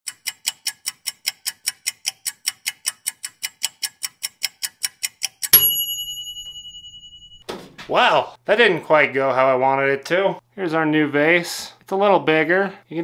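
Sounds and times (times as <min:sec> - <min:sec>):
timer ticking: 0:00.1 - 0:06.4
bell ding: 0:05.5 - 0:07.5.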